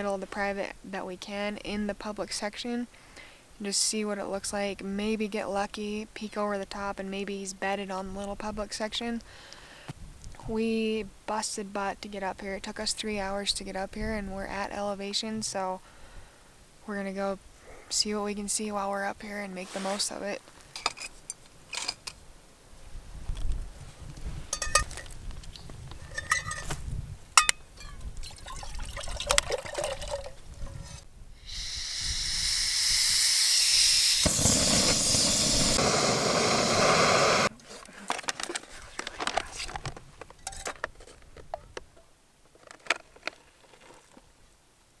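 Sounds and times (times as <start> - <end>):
stove and pot clinking: 24.5 - 25.1, 26.1 - 26.7
gas burner hissing: 31.4 - 37.5.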